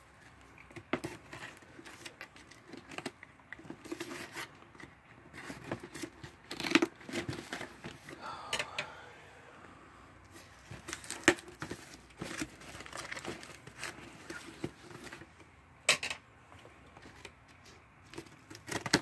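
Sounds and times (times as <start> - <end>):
packing tape tearing: 0.7 - 7.8, 10.8 - 15.3, 18.1 - 19.0.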